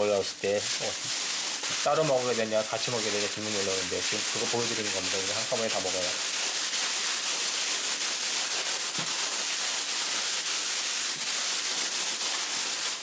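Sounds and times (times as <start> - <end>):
kibble rustling: 0.0 - 6.2
plastic bag crinkling: 0.0 - 13.0.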